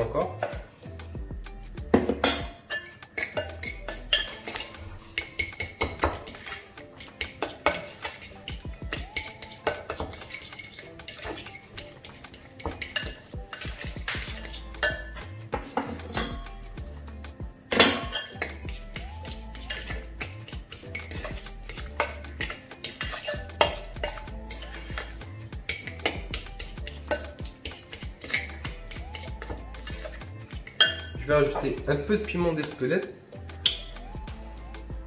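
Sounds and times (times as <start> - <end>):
fork clinking on glass bowl: 2.2 - 16.4, 19.2 - 31.2.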